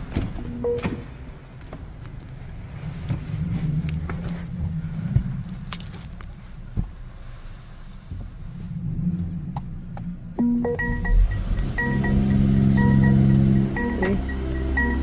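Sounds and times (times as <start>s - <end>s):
keys jingling: 2.4s - 6.3s.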